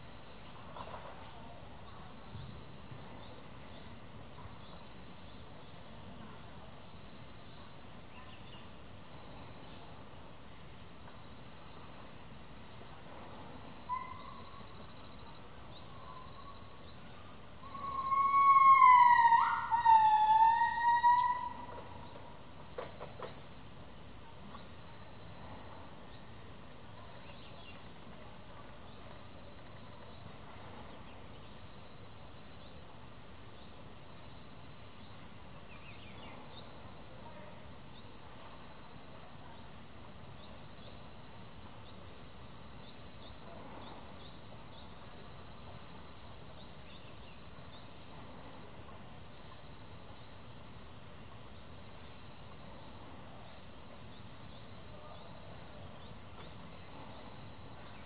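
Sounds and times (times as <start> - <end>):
insect drone: 0.0 - 58.0
high sweeping call: 17.6 - 21.9.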